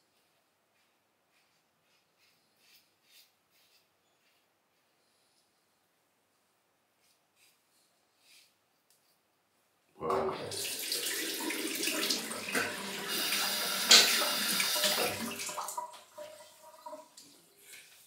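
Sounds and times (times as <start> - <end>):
tap water running into sink: 10.1 - 18.0.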